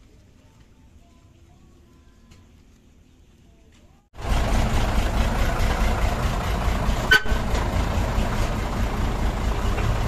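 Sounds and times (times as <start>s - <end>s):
truck engine idling: 4.2s - 10.0s
short horn toot: 7.1s - 7.4s.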